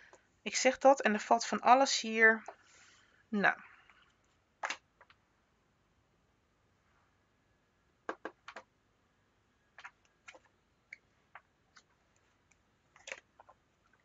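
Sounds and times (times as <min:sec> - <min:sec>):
cards tapping on wooden table: 0:08.1 - 0:08.4.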